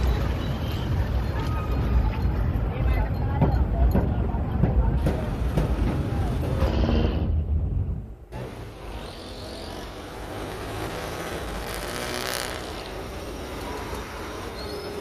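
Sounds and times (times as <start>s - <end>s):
rumble of traffic: 0.0s - 15.0s.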